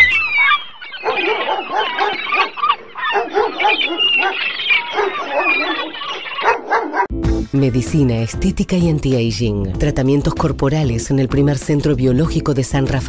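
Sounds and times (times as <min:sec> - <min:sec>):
dogs barking: 0:00.0 - 0:07.1.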